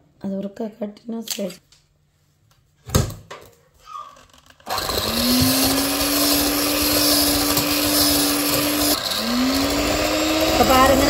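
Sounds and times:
electric hand mixer whirring: 4.6 - 11.0.

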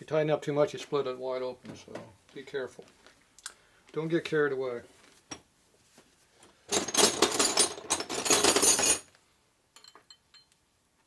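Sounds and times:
metal hand tools clattering: 6.7 - 9.0.

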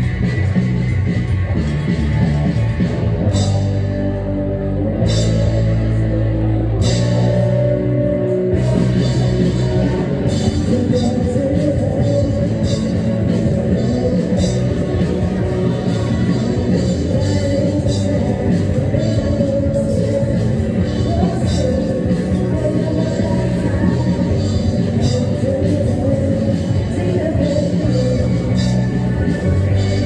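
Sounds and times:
distorted electric guitars: 0.0 - 30.0
drum kit with cymbals: 8.6 - 30.0.

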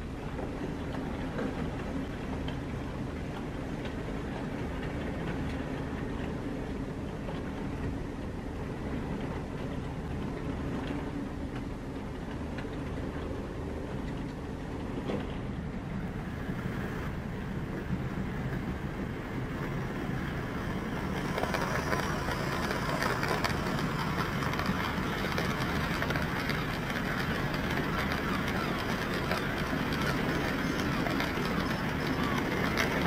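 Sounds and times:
train rumbling past: 0.0 - 33.0
wheel clicks: 20.7 - 33.0.

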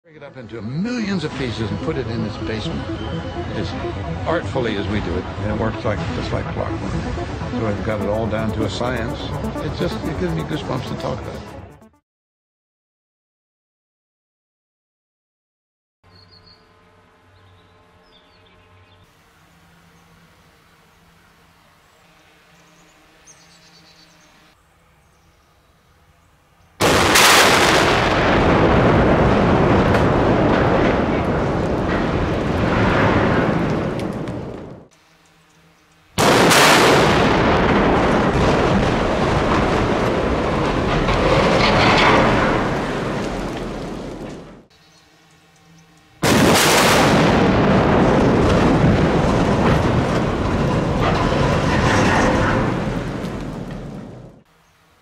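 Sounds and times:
loud rumbling: 1.6 - 11.8, 36.2 - 44.7
sharp cracks: 26.8 - 28.4, 36.2 - 44.5, 46.2 - 54.1
explosive blast: 26.8 - 34.5, 36.2 - 43.9, 46.2 - 53.8
bridge collapsing crashing rumble: 26.8 - 34.8, 36.2 - 44.7, 46.2 - 54.4.

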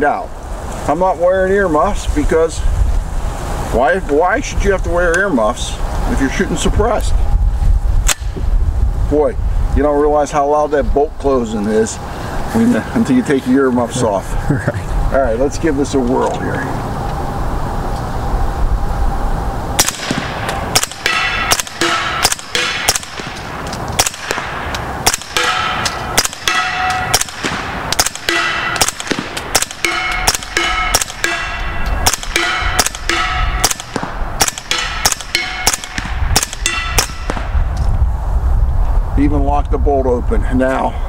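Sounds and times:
bullets ringing on steel target: 19.8 - 23.4, 25.1 - 37.5
suppressed rifle shots: 19.8 - 37.6.

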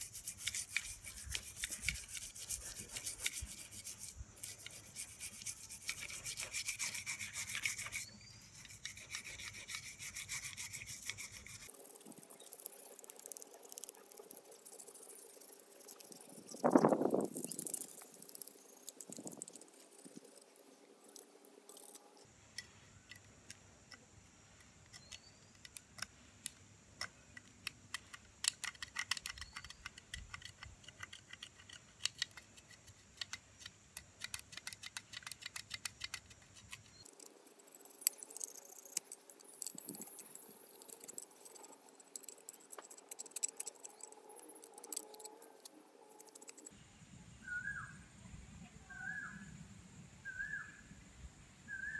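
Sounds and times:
hand tools clicking on metal: 27.0 - 37.4, 38.0 - 46.7.

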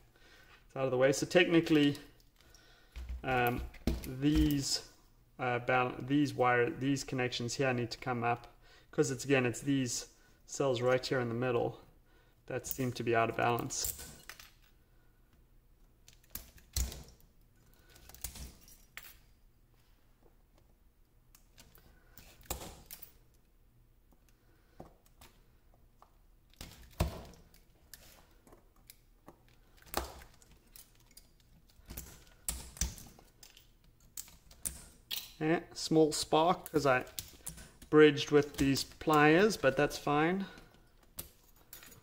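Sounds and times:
metallic snaps and clicks: 13.5 - 14.8, 16.0 - 19.3, 26.0 - 35.4.

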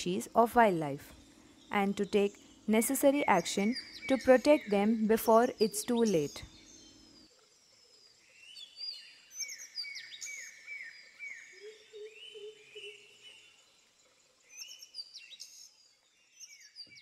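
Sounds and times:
low repeated bird notes: 0.0 - 7.3.

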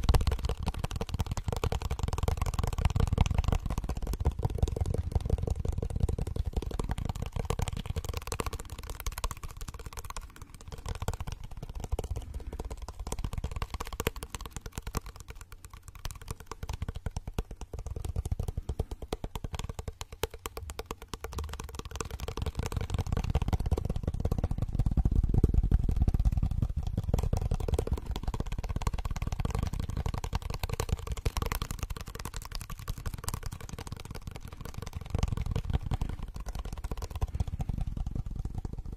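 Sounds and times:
fast fingertip tapping: 0.0 - 38.9.

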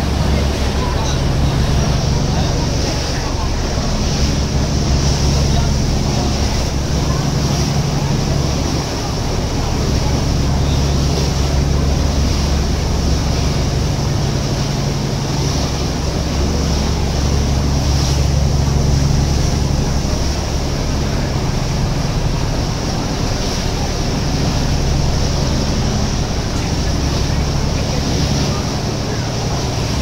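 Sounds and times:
boat engine humming: 0.0 - 30.0
wake water rushing: 0.0 - 30.0.

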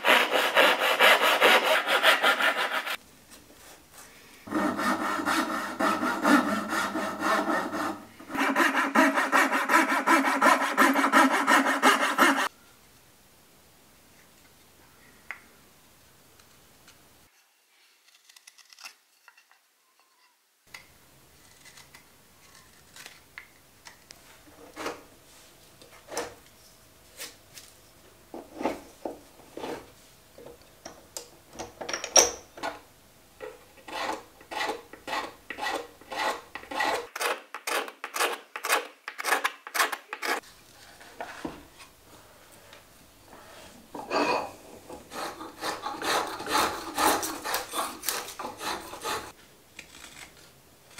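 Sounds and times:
tool scraping wooden spoon: 0.0 - 3.0, 4.5 - 12.5, 33.7 - 40.4, 44.0 - 50.1.

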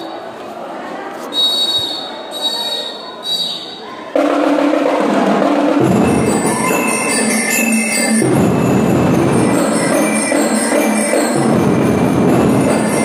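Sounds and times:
shrill whistle: 1.3 - 3.9
drums playing heavily: 4.2 - 13.0
bell lyres playing melody: 5.8 - 13.0.

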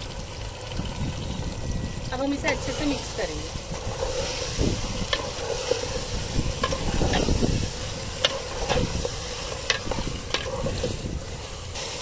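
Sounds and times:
food sizzling: 0.0 - 12.0
low rumbling noise: 0.0 - 12.0
metal spoon scraping a pot: 2.4 - 12.0.

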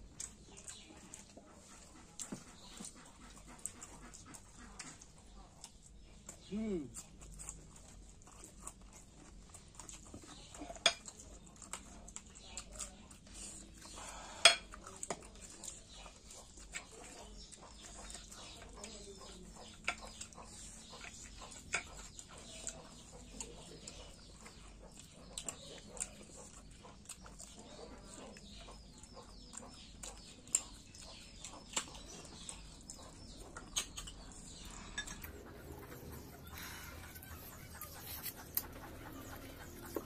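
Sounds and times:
chewing and mouth sounds: 0.0 - 40.0
clinks of a plate: 14.4 - 14.7.

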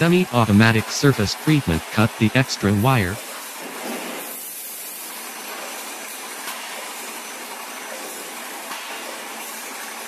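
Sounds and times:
workshop machinery din: 0.0 - 3.2.

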